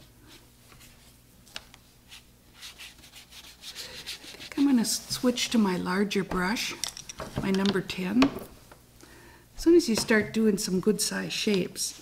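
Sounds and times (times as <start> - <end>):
brush rubbing in palette: 2.1 - 5.0.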